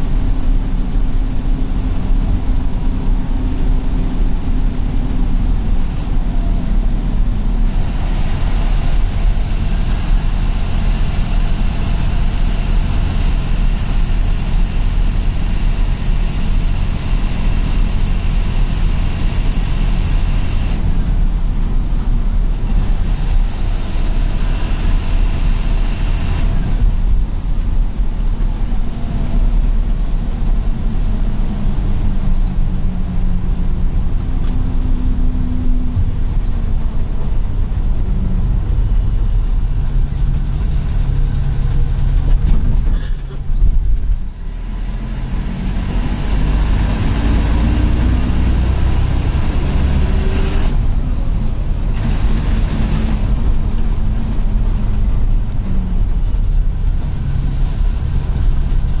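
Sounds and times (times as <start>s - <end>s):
bus diesel engine drone: 0.0s - 59.0s.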